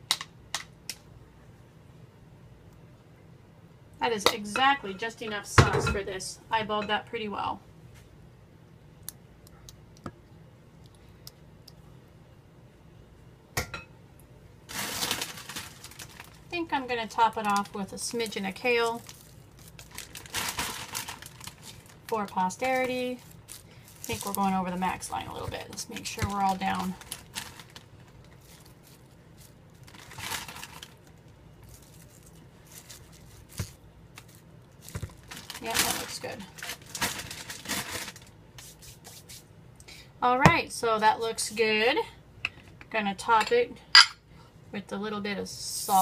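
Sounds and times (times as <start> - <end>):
kale leaves rustling and crinkling: 14.7 - 16.5, 17.1 - 38.3.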